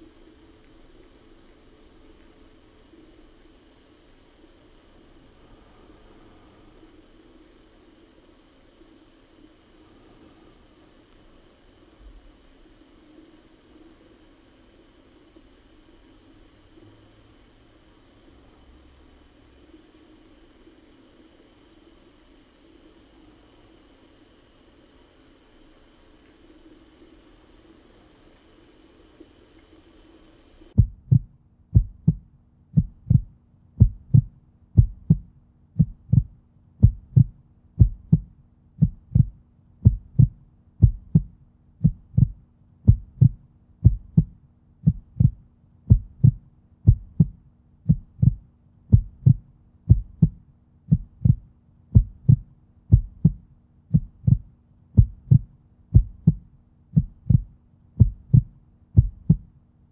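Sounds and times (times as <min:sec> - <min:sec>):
faint steady hum: 0:00.0 - 0:59.9
heartbeat-like low thumps: 0:30.8 - 0:59.6.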